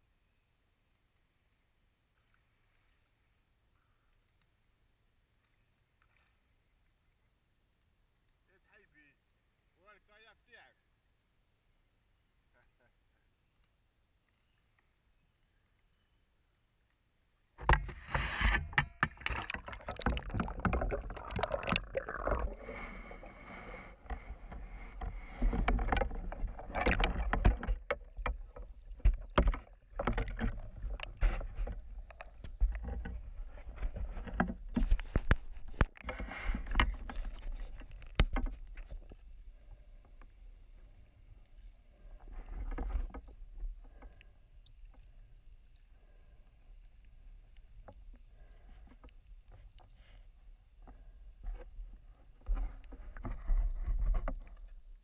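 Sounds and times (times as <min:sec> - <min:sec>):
water splashing and sloshing: 0:17.4 - 0:55.0.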